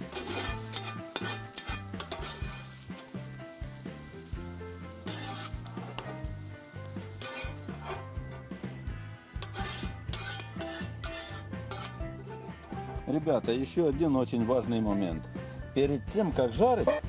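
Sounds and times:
metal spatula scraping a pan: 0:00.0 - 0:03.2, 0:04.9 - 0:08.6, 0:09.4 - 0:13.1
lard sizzling in a frying pan: 0:00.0 - 0:13.0.

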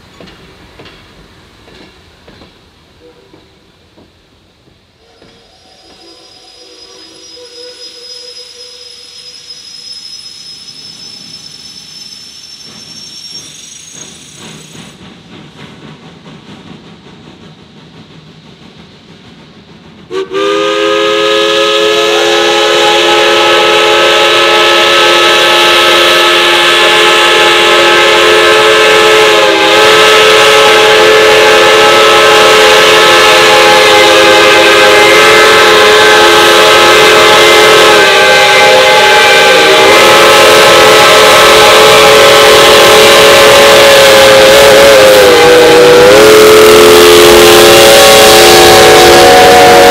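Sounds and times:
steam locomotive chime whistle: 0:05.0 - 0:14.8, 0:20.1 - 0:49.9.

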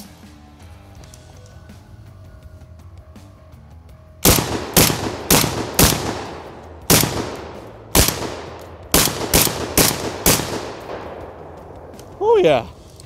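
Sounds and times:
shotgun shots echoing: 0:04.2 - 0:12.2.

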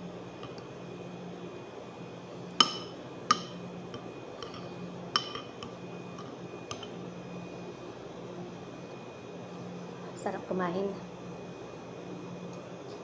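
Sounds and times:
metal spoon clinking on bowl: 0:02.6 - 0:03.6, 0:04.4 - 0:07.0.

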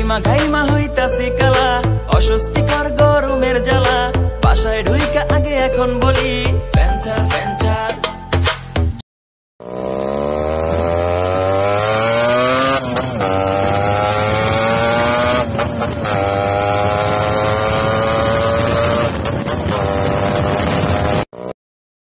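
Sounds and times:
motorcycle engine accelerating: 0:09.6 - 0:21.6.

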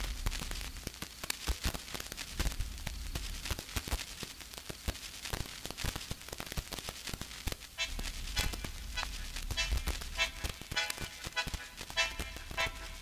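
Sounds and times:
crackling static noise: 0:00.0 - 0:13.0
faint tune: 0:07.8 - 0:13.0.

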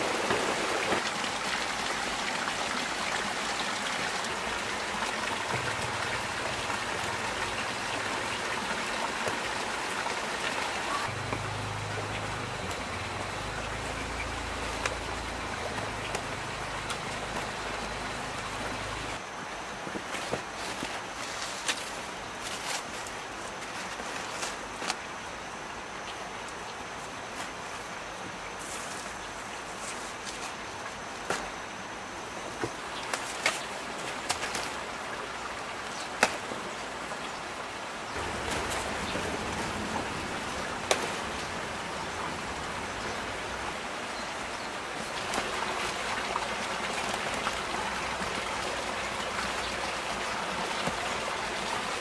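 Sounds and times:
heavy rain falling: 0:00.0 - 0:19.2, 0:38.1 - 0:52.0
sharp ticks of raindrops: 0:11.0 - 0:19.0.

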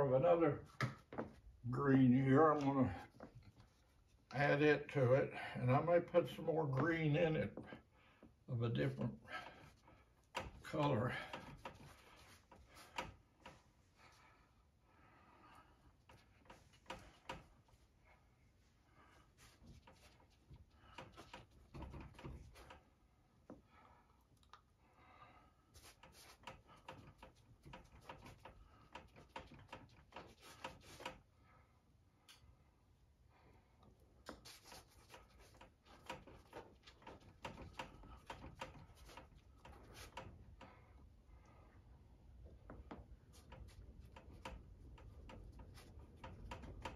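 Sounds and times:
fingers dabbing paint on canvas: 0:25.7 - 0:31.2, 0:34.2 - 0:40.7, 0:42.4 - 0:46.9.

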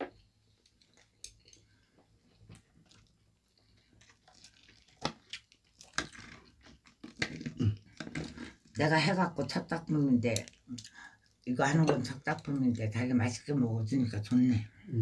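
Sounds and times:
chewing: 0:00.6 - 0:08.8
fish tearing by hand: 0:04.0 - 0:08.6.

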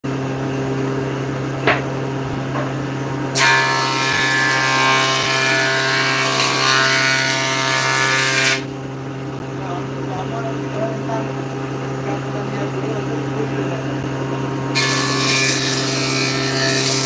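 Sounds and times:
table saw humming: 0:00.0 - 0:17.0
saw blade cutting wood: 0:03.3 - 0:08.7, 0:14.7 - 0:17.0.

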